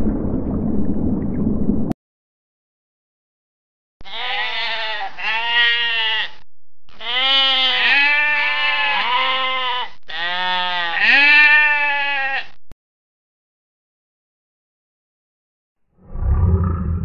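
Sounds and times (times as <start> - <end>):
livestock bleating: 4.0 - 12.6.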